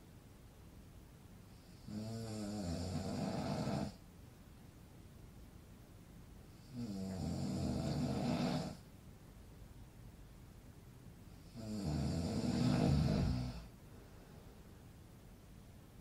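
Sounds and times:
man snoring: 0:01.6 - 0:04.0, 0:06.6 - 0:08.8, 0:11.4 - 0:13.7.

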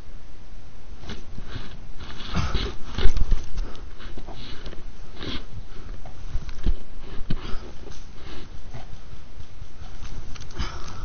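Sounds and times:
person breathing hard: 0:07.0 - 0:09.0, 0:10.4 - 0:11.0.

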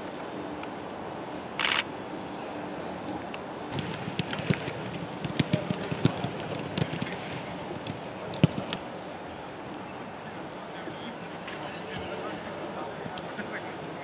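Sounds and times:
background noise: 0:00.0 - 0:14.0
footballs being kicked: 0:03.7 - 0:08.8.

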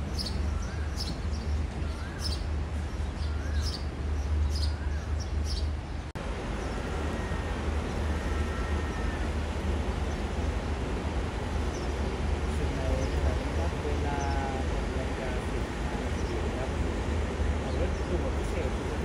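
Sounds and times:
diesel railcar idling: 0:00.0 - 0:19.0
small birds chirping: 0:00.1 - 0:09.2, 0:11.4 - 0:16.8.

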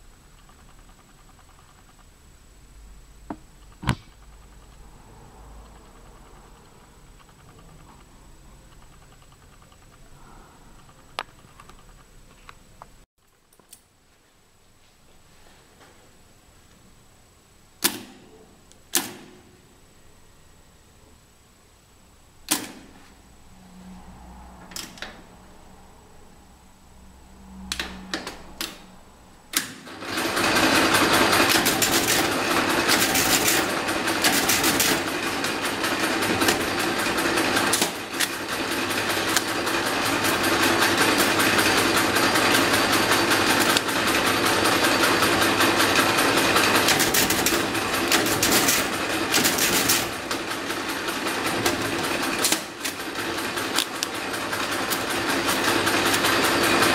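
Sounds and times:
calculating machine clatter: 0:00.1 - 0:02.2, 0:03.5 - 0:12.2, 0:29.6 - 0:56.9.

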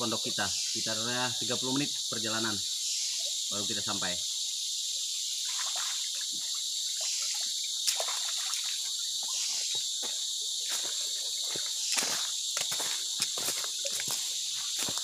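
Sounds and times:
insect chorus: 0:00.0 - 0:15.0
stream trickling over stones: 0:02.5 - 0:15.0
hands splashing in water: 0:07.8 - 0:08.9
footsteps crunching on pebbles: 0:09.7 - 0:15.0.

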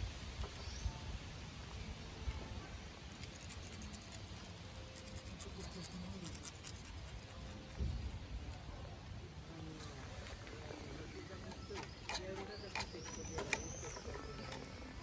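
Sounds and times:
outdoor background noise: 0:00.0 - 0:15.0
claws scratching on wooden bench: 0:03.1 - 0:08.6, 0:10.2 - 0:15.0.

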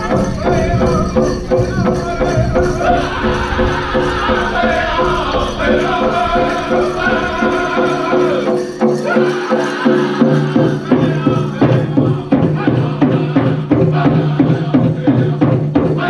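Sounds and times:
big drum steady beat: 0:00.0 - 0:16.0
chorus of voices singing: 0:00.0 - 0:16.0.

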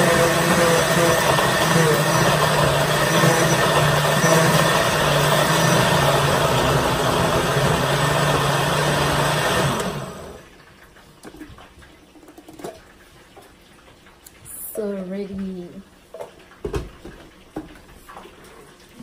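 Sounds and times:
blender motor winding down: 0:00.0 - 0:10.4
blender motor running: 0:00.0 - 0:10.5.

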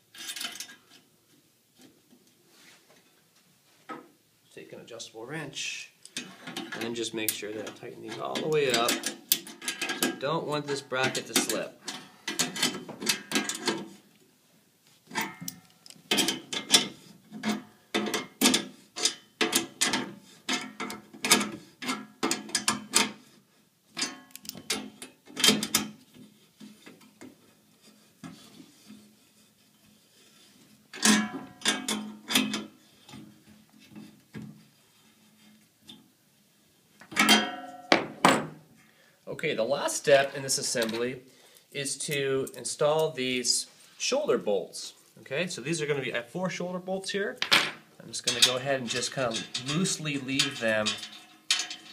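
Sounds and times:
wrench clinking on metal nuts: 0:06.2 - 0:10.2, 0:48.2 - 0:51.9.

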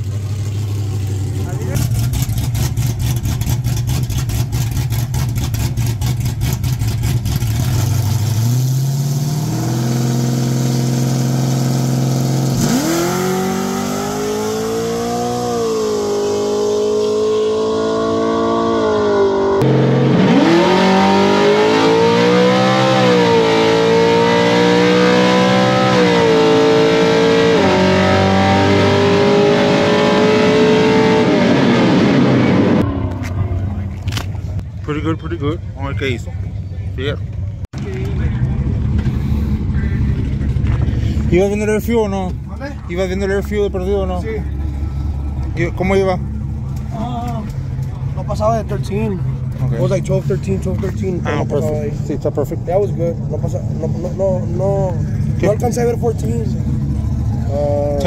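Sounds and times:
truck engine revving and accelerating: 0:00.0 - 0:34.6.

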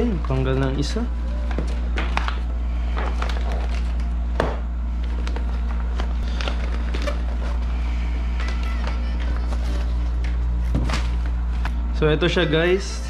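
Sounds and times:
low steady hum: 0:00.0 - 0:13.0
plastic packaging crinkling: 0:05.0 - 0:11.8.

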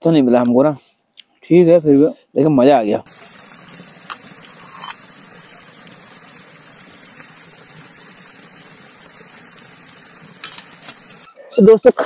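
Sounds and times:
steel bowl clinking: 0:03.1 - 0:07.4
stream rushing: 0:03.1 - 0:11.3.

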